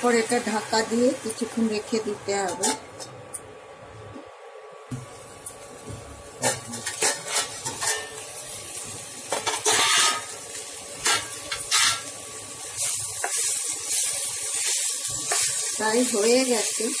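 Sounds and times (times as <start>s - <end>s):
vegetables sizzling in a pan: 0.0s - 3.0s, 4.9s - 17.0s
spatula scraping a pan: 6.8s - 8.2s, 9.3s - 10.3s, 11.0s - 12.1s.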